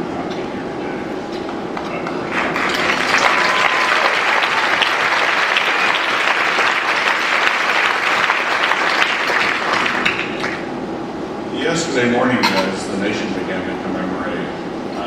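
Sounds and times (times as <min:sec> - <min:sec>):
audience applauding: 0:02.3 - 0:10.6.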